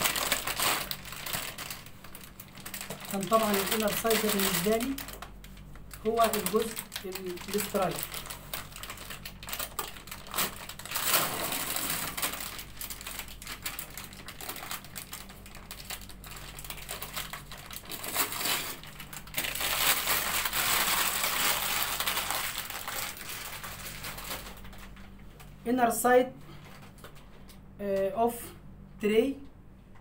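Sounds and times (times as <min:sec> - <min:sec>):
paper wrapper crinkling: 0:00.0 - 0:25.5.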